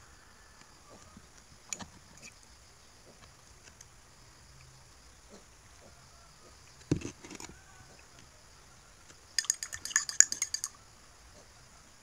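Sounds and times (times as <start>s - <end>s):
spoon clinking against mug: 9.4s - 10.8s.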